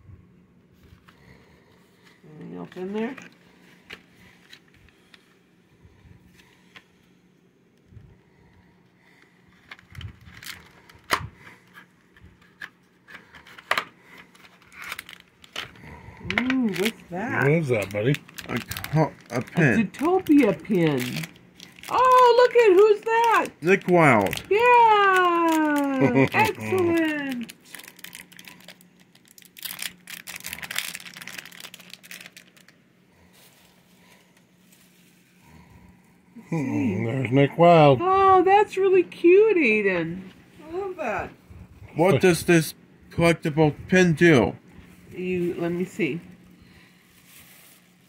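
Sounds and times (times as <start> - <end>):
plastic packaging crinkling: 9.0 - 35.4, 46.7 - 48.0.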